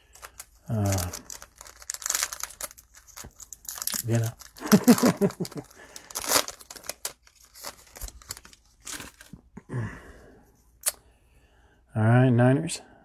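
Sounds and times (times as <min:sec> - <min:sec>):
cellophane wrapper crinkling and tearing: 0:00.0 - 0:09.5.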